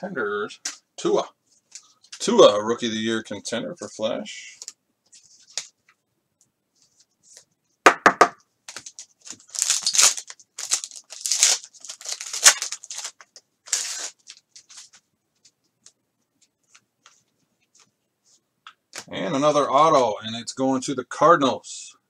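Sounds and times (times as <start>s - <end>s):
foil wrapper tearing and crinkling: 8.7s - 14.9s.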